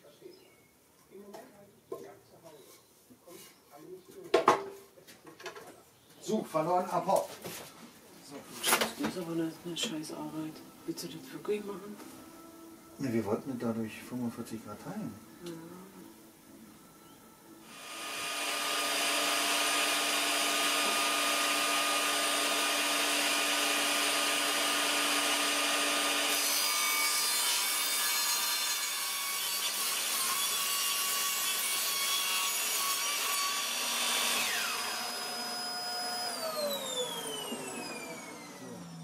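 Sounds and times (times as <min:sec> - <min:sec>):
table saw motor whining: 0:17.7 - 0:26.8, 0:32.5 - 0:39.0
saw cutting wooden board: 0:17.7 - 0:39.0
saw blade running down: 0:33.2 - 0:39.0.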